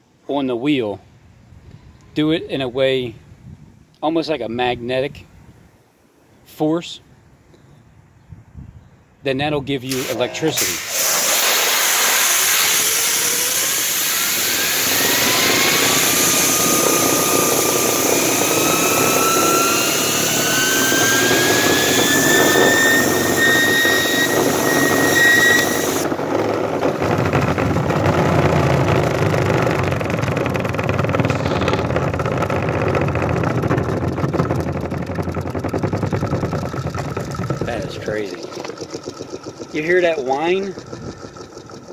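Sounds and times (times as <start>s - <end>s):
pressure washer spray hissing: 9.9s - 14.4s
spinning wheel whine: 10.0s - 41.9s.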